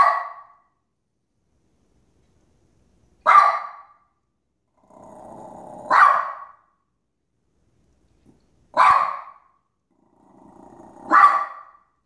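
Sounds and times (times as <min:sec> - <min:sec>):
small dog barking: 0:00.0 - 0:00.7, 0:03.2 - 0:04.0, 0:05.8 - 0:06.7, 0:08.7 - 0:09.6, 0:10.9 - 0:11.9
dog growling: 0:04.7 - 0:06.0, 0:09.9 - 0:11.2.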